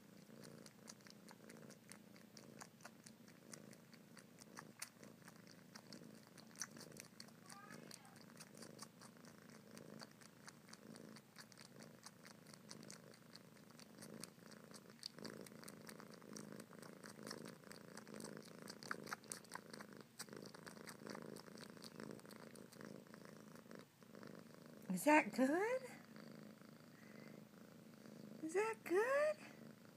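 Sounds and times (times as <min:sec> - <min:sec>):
kitten purring: 0:00.0 - 0:29.9
wet suckling clicks: 0:00.2 - 0:22.9.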